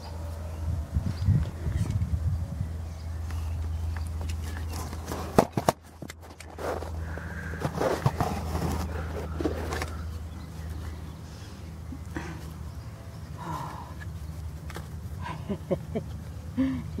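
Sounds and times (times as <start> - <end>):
steady low hum: 0.0 - 17.0
rustling and scraping near microphone: 4.0 - 11.7.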